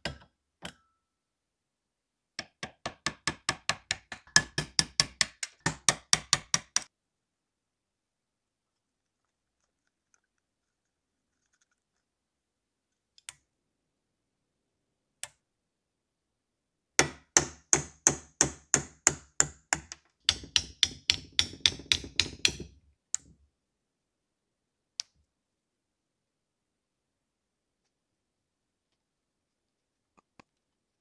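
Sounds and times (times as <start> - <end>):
hammer tapping metal: 2.4 - 6.9, 17.0 - 22.8.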